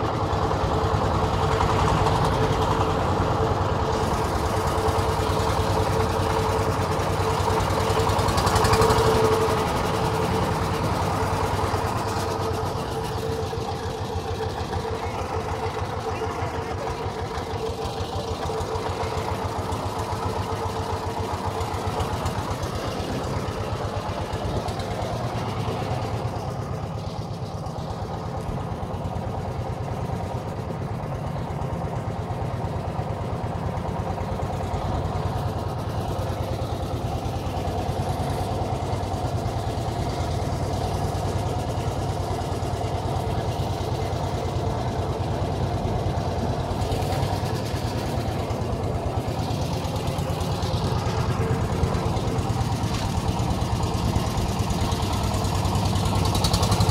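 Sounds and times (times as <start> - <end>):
boat engine humming: 0.0 - 56.9.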